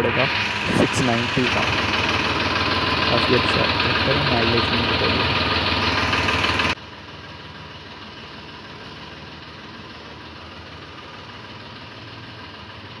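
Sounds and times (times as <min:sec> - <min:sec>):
tractor diesel engine idling: 0:00.0 - 0:13.0.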